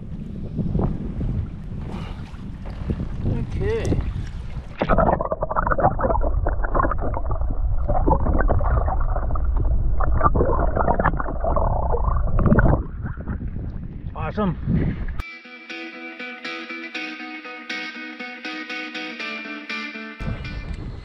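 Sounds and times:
muffled underwater gurgling: 0:04.7 - 0:13.8.

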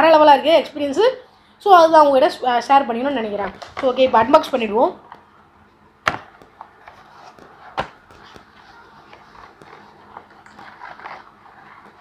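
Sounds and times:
cardboard rustling: 0:06.2 - 0:12.0.

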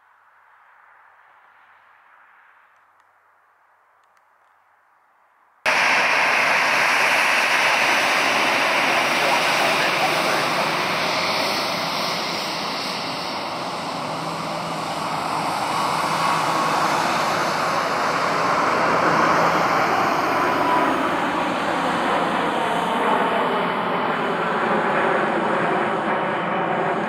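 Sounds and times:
jet taking off: 0:05.7 - 0:27.0.

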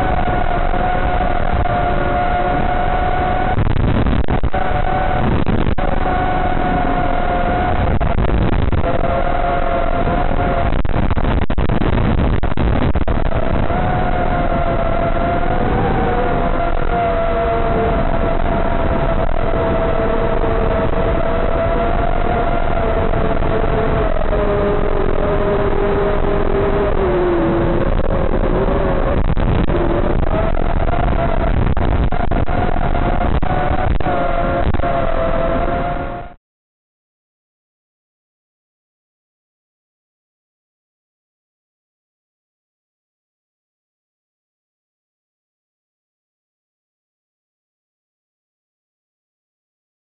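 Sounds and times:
rushing noise: 0:00.0 - 0:36.4.

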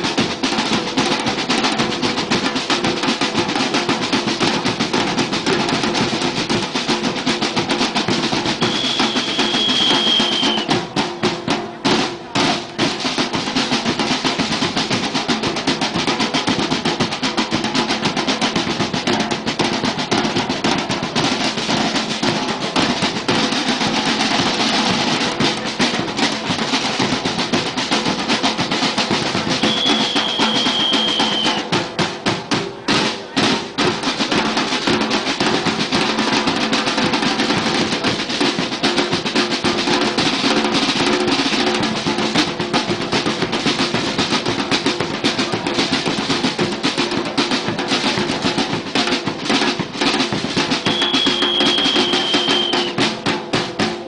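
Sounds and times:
drum band playing fast rhythm: 0:00.0 - 0:54.0
long high whistle: 0:08.6 - 0:10.7, 0:29.6 - 0:31.6, 0:50.9 - 0:52.9.

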